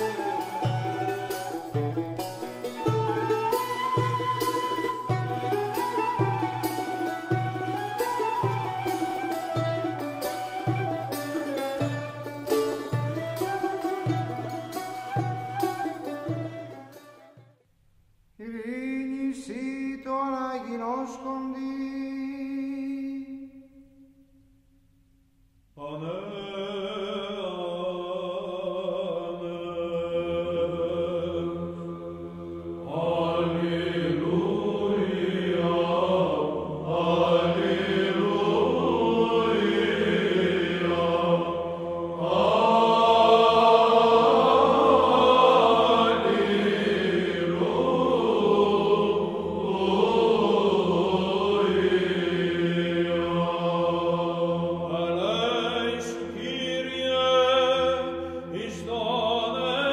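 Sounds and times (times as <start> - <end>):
chant sung: 25.8 - 59.9.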